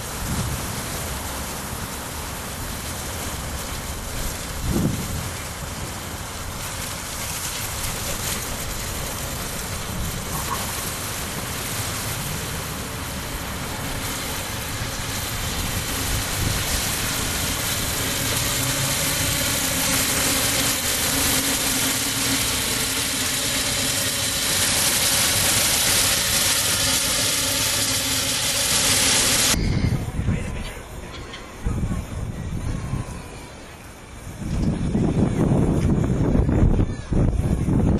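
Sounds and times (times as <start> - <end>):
miniature train rumble and hiss: 0.0 - 37.9.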